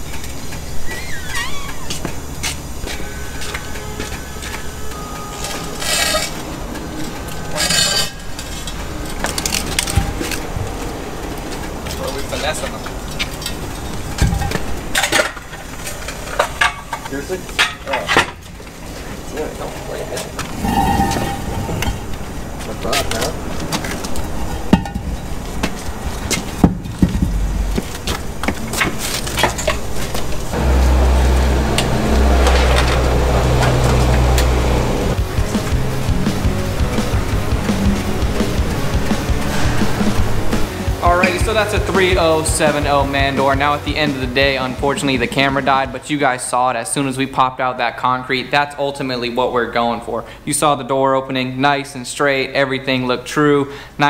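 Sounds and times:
concrete slab and hand truck clattering: 0:00.0 - 0:46.0
concrete slab scraping: 0:05.4 - 0:10.5, 0:20.1 - 0:24.1
low rumble: 0:20.5 - 0:23.6, 0:27.0 - 0:28.4, 0:30.4 - 0:42.6
low engine hum: 0:30.4 - 0:42.4.

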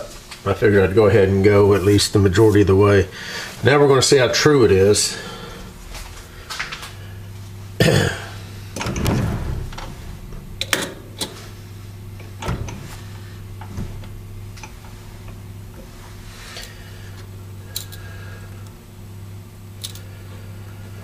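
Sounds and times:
steady low hum: 0:00.0 - 0:21.0
metal knocks and clicks: 0:08.8 - 0:11.4.

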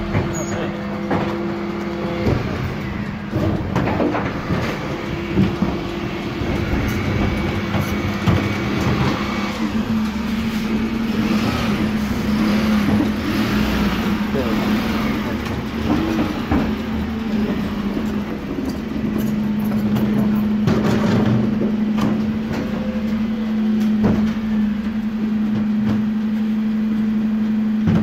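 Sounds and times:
knocks and clatters: 0:03.3 - 0:10.7, 0:12.7 - 0:13.5, 0:15.2 - 0:22.8.

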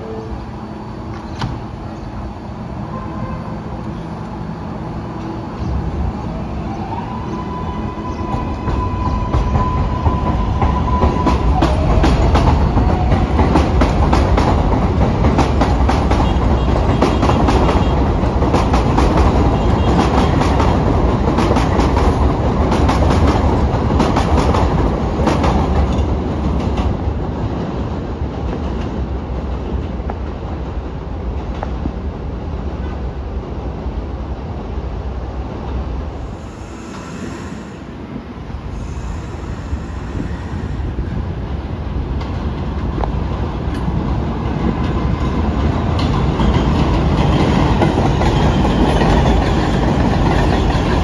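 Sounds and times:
subway train wheels clattering: 0:00.0 - 0:51.0
steady high tone: 0:36.1 - 0:41.5.

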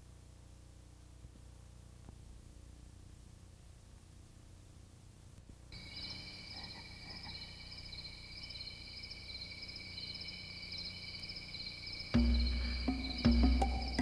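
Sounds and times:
frogs calling: 0:05.7 - 0:14.0.

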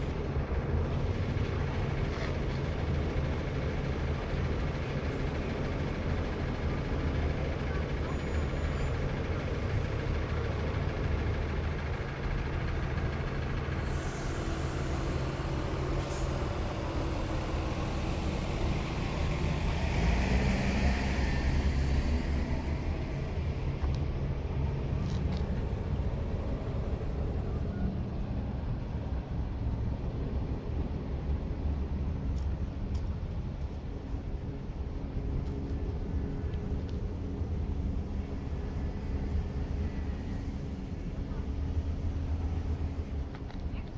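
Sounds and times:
heavy vehicle engines rumbling: 0:00.0 - 0:43.9
long hiss: 0:13.8 - 0:22.8.

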